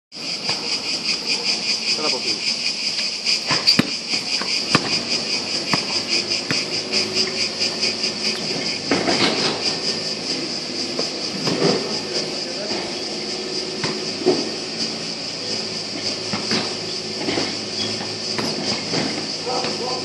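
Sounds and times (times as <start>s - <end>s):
cicadas buzzing: 0.1s - 20.0s
basketball bouncing on court: 3.5s - 7.3s.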